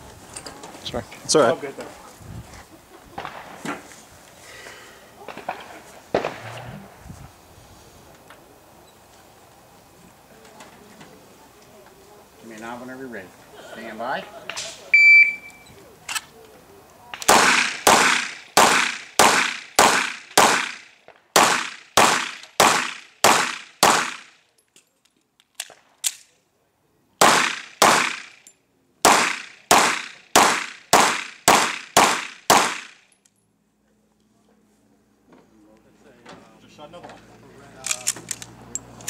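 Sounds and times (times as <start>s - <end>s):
pistol shots: 5.3s - 6.6s, 17.2s - 24.3s, 27.2s - 28.3s, 29.0s - 33.0s.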